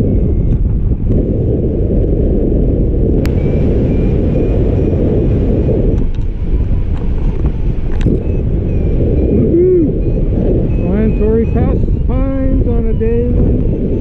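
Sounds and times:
wind buffeting microphone: 0.0s - 14.0s
short high beeps: 9.7s - 14.0s.

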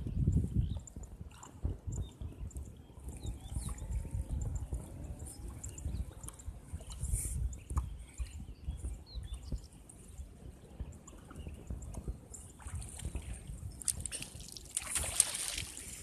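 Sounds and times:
water lapping against raft: 5.1s - 16.0s.

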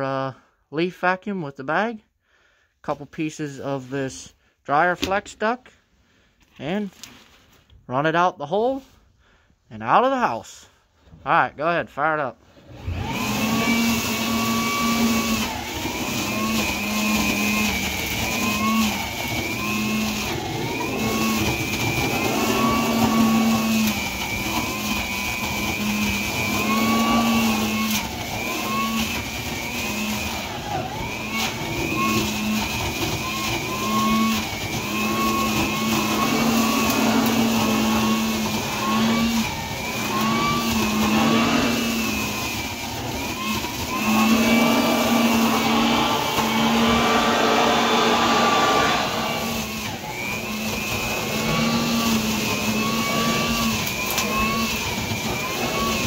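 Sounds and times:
leaf vacuum motor whine: 12.5s - 56.0s.

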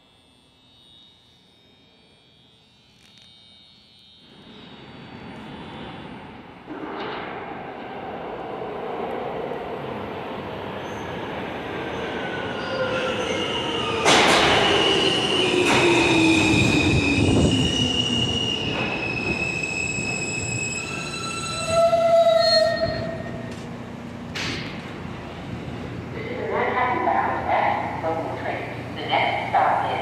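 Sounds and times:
wheels and brakes squealing: 10.8s - 23.6s.

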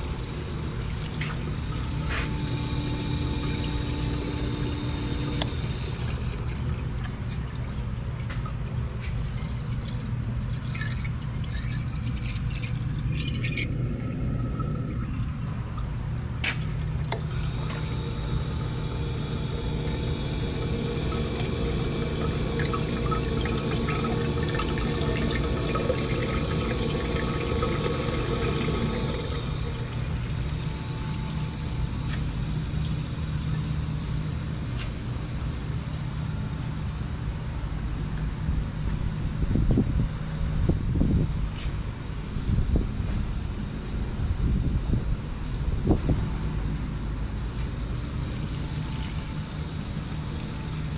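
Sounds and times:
coolant splashing into tank: 0.0s - 34.8s, 47.7s - 50.9s
low motor hum: 0.0s - 50.9s.

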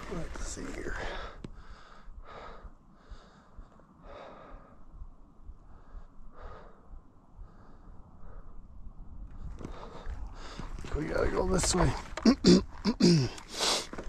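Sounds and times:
person breathing heavily: 0.9s - 8.8s, 9.4s - 10.9s, 12.8s - 14.0s.

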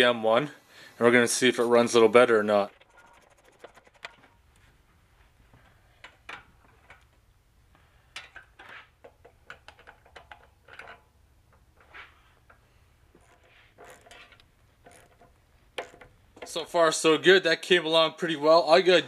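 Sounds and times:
metallic clicks and clinks of tools: 8.1s - 11.6s.

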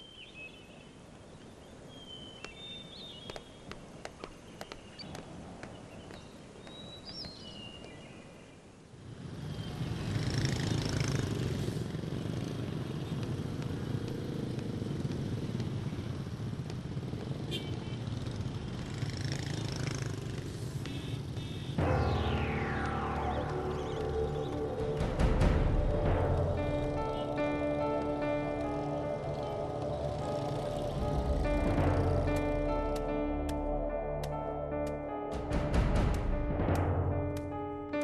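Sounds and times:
music: 21.8s - 38.0s.

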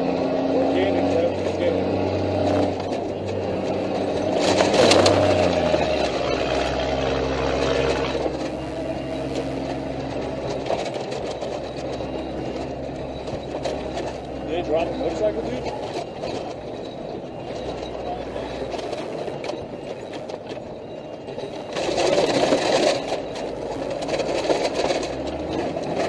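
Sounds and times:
vehicle engine running: 0.0s - 26.0s.

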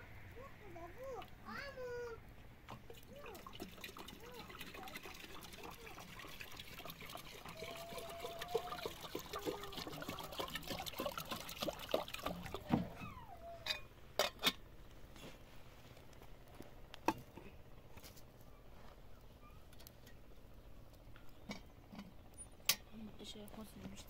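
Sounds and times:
water pouring into metal kettle: 2.7s - 12.7s.

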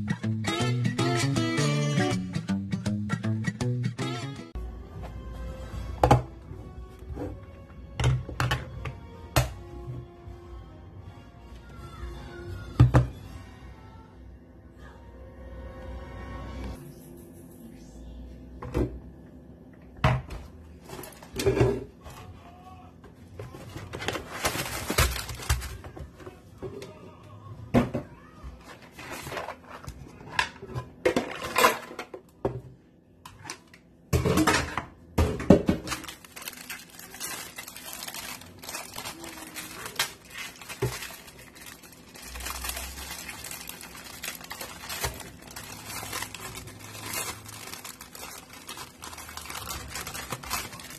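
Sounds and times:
plastic packaging rustling: 23.5s - 26.1s, 35.7s - 50.9s.

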